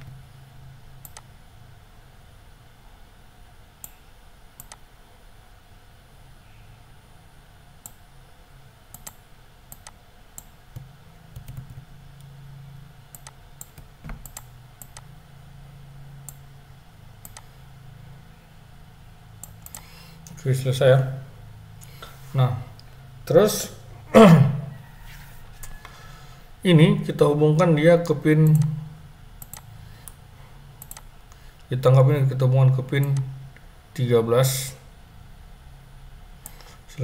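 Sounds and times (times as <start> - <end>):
faint low hum: 0.0 - 37.0
computer mouse clicking: 1.0 - 1.3, 4.6 - 4.8, 8.9 - 11.8, 13.1 - 15.1, 17.2 - 17.5, 19.4 - 20.4, 29.4 - 30.2, 30.8 - 31.4, 36.4 - 36.8.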